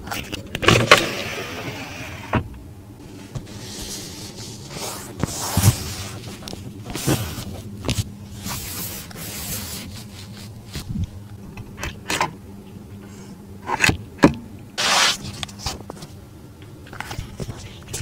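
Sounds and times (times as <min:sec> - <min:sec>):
hand rubbing leather upholstery: 0:03.1 - 0:10.9.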